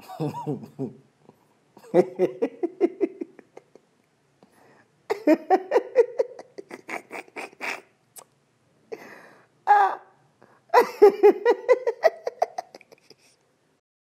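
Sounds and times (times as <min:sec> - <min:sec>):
man laughing hard: 0:00.0 - 0:01.0, 0:01.8 - 0:03.8, 0:05.1 - 0:07.9, 0:10.7 - 0:13.3.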